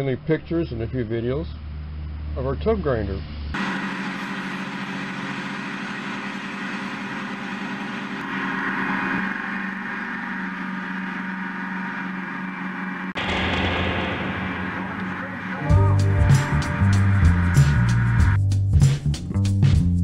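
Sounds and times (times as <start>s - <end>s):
tub grinder droning: 2.6s - 18.4s.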